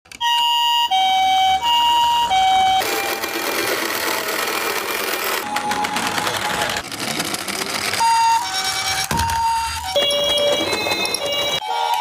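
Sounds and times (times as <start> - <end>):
toy siren two-tone call: 0.2 - 3.4, 8.0 - 12.0
toy rolling whirr: 2.8 - 11.6.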